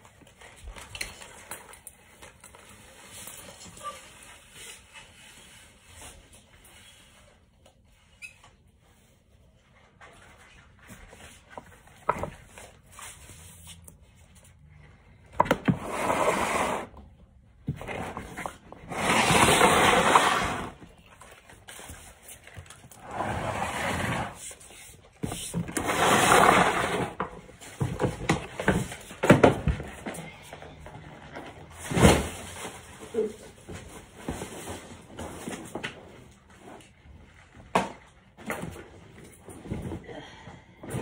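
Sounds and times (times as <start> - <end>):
ornaments rustling and scraping: 8.6 - 37.6.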